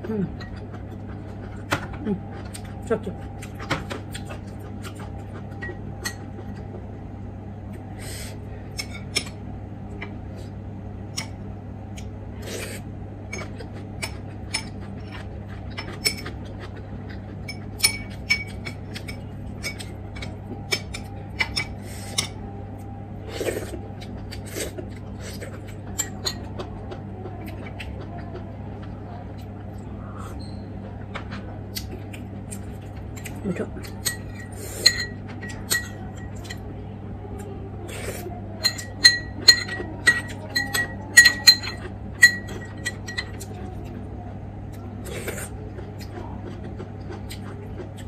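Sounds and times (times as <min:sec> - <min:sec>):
steady low hum: 0:00.0 - 0:48.0
metal spoon clinking on ceramic bowls: 0:33.9 - 0:36.6, 0:38.6 - 0:43.3.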